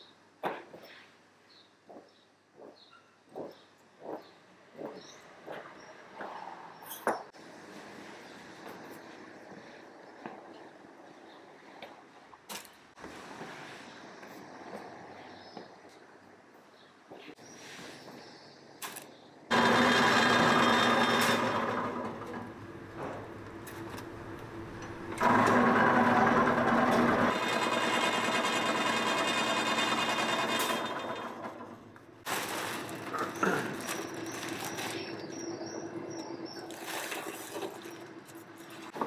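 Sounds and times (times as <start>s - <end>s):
machine motor humming: 19.5s - 31.8s.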